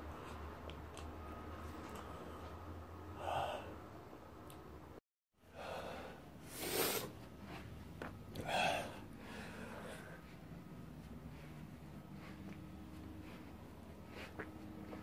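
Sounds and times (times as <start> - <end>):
man exhaling breathily: 3.1 - 3.8.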